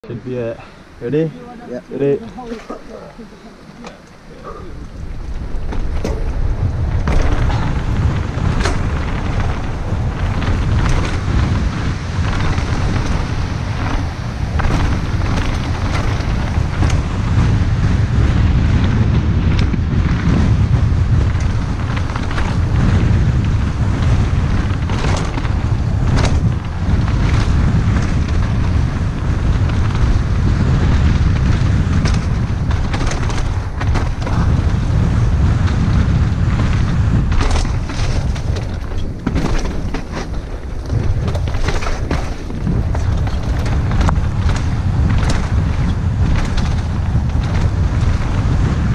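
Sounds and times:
tyres rumbling on dirt trail: 0:00.0 - 0:48.9
wind buffeting microphone: 0:00.0 - 0:48.9
bike knocks and rattles: 0:03.8 - 0:48.9.

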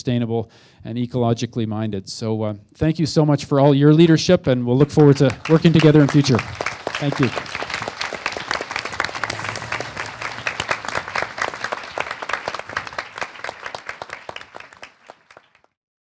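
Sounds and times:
audience applauding: 0:04.9 - 0:15.8.

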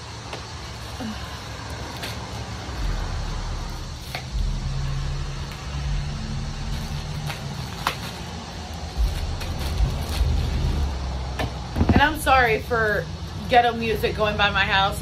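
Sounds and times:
bass-heavy music from passing car: 0:01.5 - 0:15.0
plastic wrapping crackling: 0:06.7 - 0:11.1.

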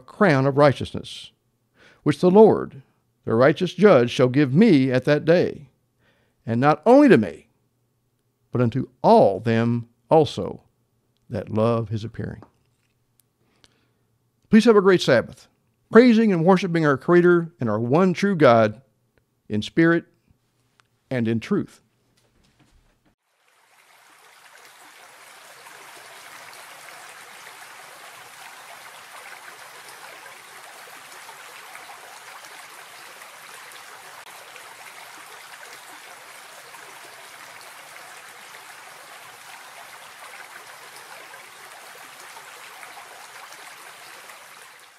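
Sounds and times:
stream running over rocks: 0:23.2 - 0:44.9.

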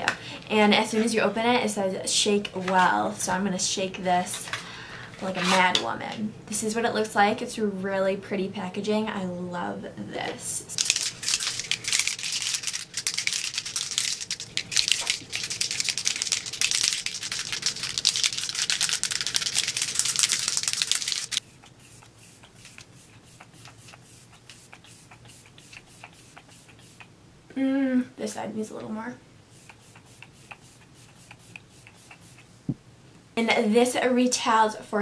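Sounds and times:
liquid rattling in shaken bottle: 0:10.7 - 0:27.0, 0:29.5 - 0:32.4
spray bottle puffs and clicks: 0:10.8 - 0:27.1, 0:29.6 - 0:32.5.

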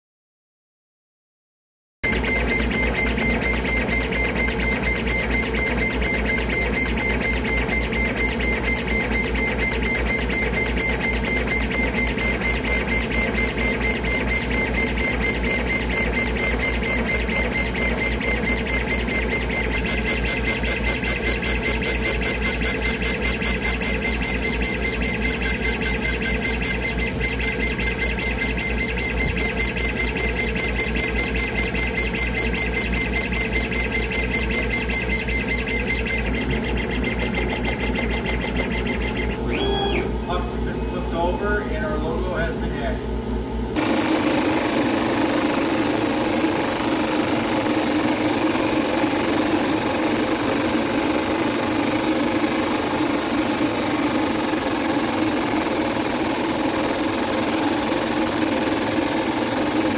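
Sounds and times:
laser engraver mechanical pulsing: 0:02.0 - 0:59.9
higher whine: 0:39.3 - 0:43.2.

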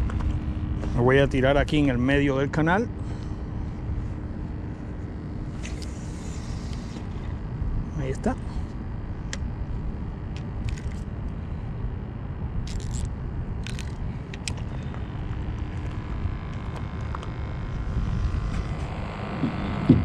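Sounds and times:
wind buffeting microphone: 0:15.1 - 0:20.0.

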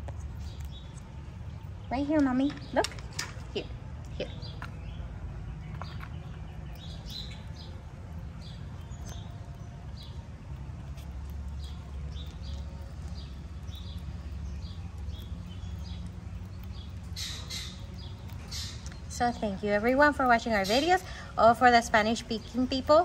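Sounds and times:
squirrel gnawing clicks: 0:00.0 - 0:03.4, 0:05.6 - 0:23.0
small birds chirping: 0:00.0 - 0:23.0
steady low rumble: 0:00.0 - 0:23.0.

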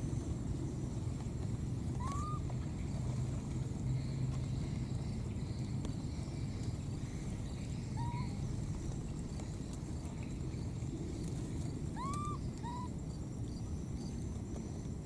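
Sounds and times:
steady low rumble: 0:00.0 - 0:15.0
baby monkey cooing: 0:02.0 - 0:02.4, 0:12.0 - 0:12.9.

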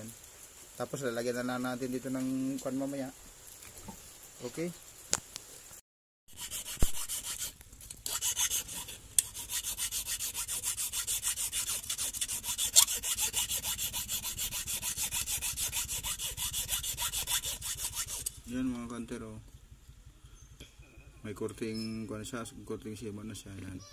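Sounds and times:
hand file rasping on metal: 0:06.3 - 0:18.4.

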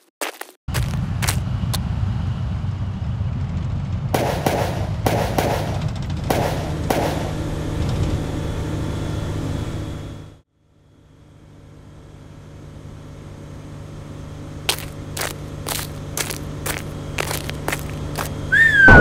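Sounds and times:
low engine rumble: 0:00.7 - 0:19.0
sharp cracks: 0:04.2 - 0:07.4, 0:14.7 - 0:19.0.

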